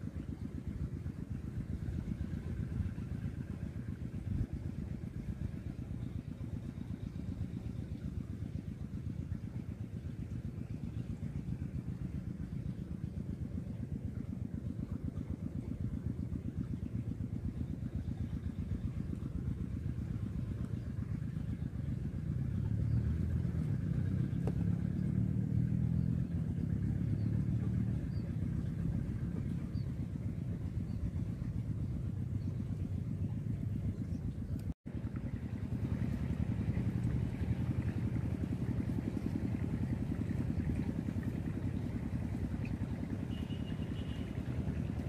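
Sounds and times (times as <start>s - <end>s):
engine rumbling: 0.0s - 45.0s.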